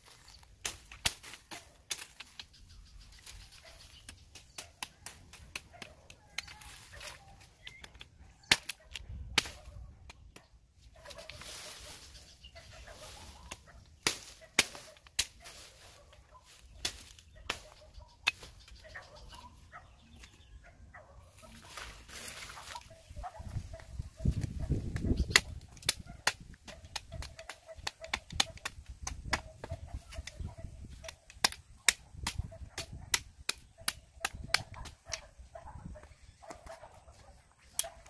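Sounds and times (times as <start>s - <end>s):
machete chopping wood: 0.6s - 2.4s, 7.7s - 10.5s, 13.5s - 15.4s, 16.8s - 18.6s, 24.3s - 35.2s.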